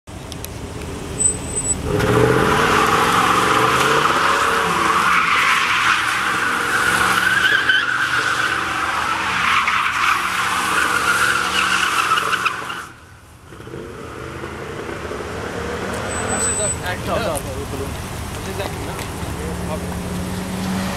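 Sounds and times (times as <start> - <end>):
tyres squealing: 1.2 - 13.0, 15.7 - 17.4
car engine revving hard: 1.8 - 9.4.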